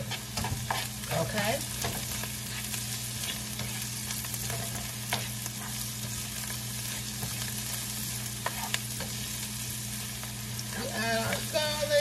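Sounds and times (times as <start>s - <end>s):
spatula scraping a pan: 0.0s - 9.2s
vegetables sizzling in a frying pan: 0.0s - 12.0s.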